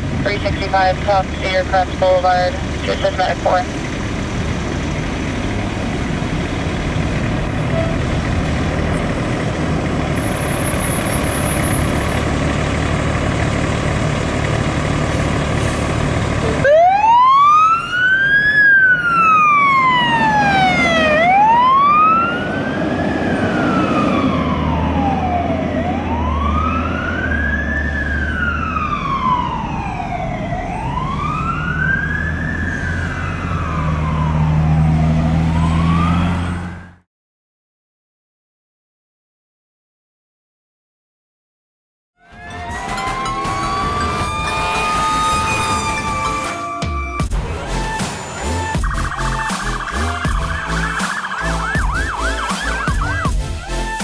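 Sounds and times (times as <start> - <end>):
fire engine diesel engine: 0.0 - 37.1, 42.3 - 54.0
siren wailing: 16.5 - 37.0, 42.2 - 54.0.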